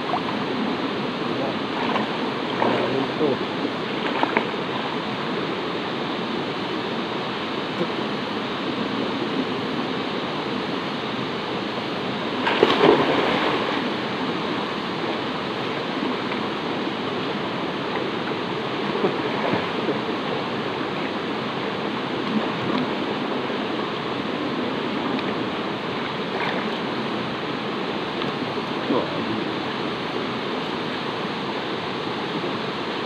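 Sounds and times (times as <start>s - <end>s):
stream rushing over rocks: 0.0s - 33.0s
person splashing into water: 12.4s - 13.9s.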